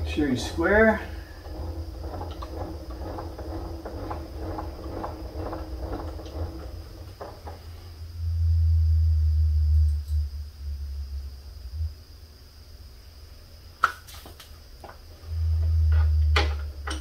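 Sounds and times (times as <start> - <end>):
low rumble: 0.0 - 12.1
steady hum: 0.0 - 13.8, 14.5 - 17.0.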